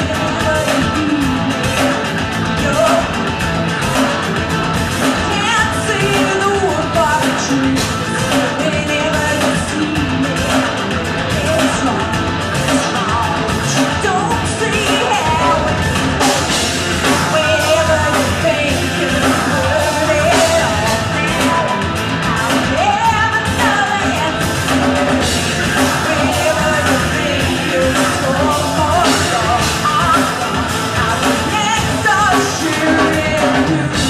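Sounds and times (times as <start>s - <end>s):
woman singing: 0.0s - 4.3s, 5.0s - 34.0s
drum kit with cymbals: 0.0s - 34.0s
electric guitars: 0.0s - 34.0s.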